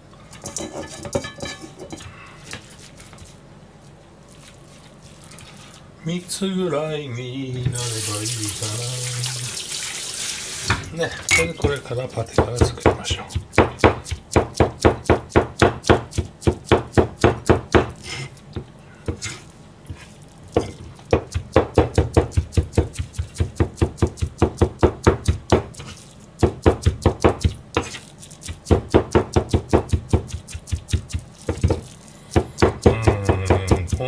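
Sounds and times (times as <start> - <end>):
cleaver chopping on cutting board: 12.3 - 18.0, 20.5 - 34.0.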